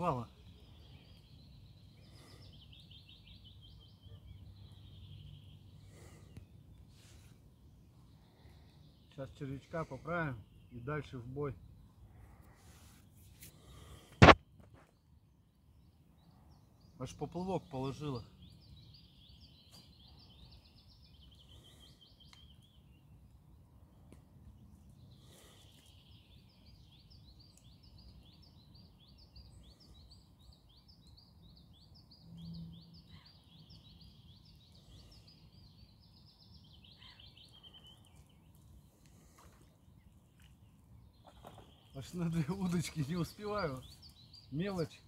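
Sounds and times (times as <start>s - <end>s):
songbird chirping: 0.0s - 45.0s.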